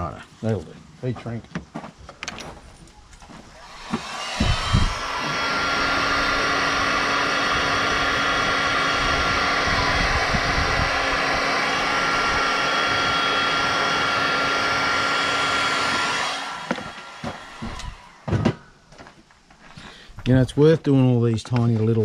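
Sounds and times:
heat gun blowing hot air: 3.4s - 18.3s.

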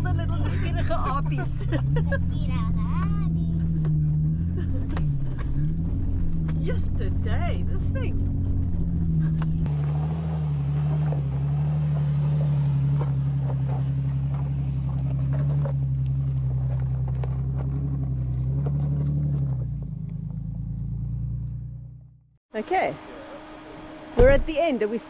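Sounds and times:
car engine running at low revs: 0.0s - 25.0s
stones crunching under tyres: 8.2s - 21.6s.

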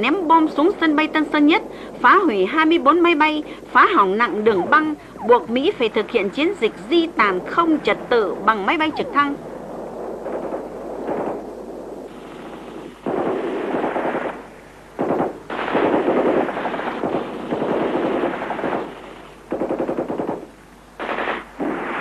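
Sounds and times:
machine-gun fire bursts: 15.0s - 18.9s, 19.5s - 22.0s.

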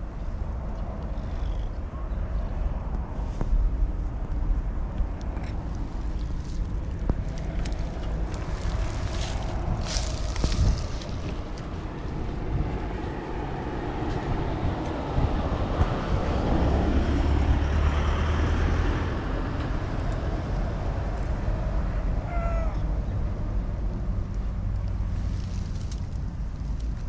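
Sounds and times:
steady low rumble: 0.0s - 27.0s
cat meowing: 22.2s - 22.9s.

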